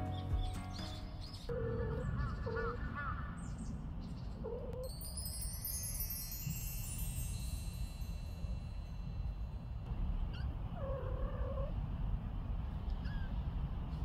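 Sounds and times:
chime tones: 0:04.8 - 0:09.9.

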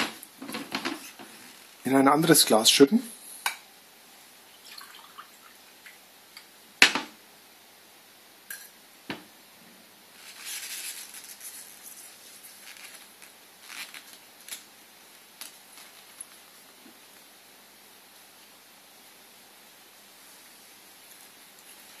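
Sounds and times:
tea towel rustling: 0:10.1 - 0:17.3.

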